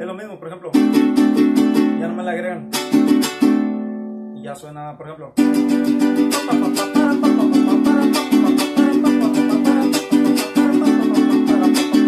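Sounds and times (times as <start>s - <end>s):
small guitar strummed fast: 5.4s - 12.0s.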